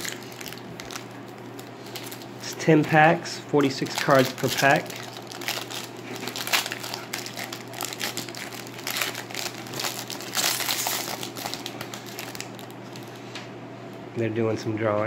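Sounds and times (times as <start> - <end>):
foil wrapper tearing and crinkling: 0.0 - 2.3, 3.6 - 13.1.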